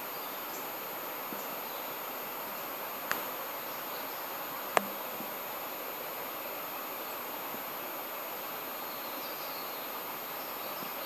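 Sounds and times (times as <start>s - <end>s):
insects buzzing: 0.0s - 8.0s.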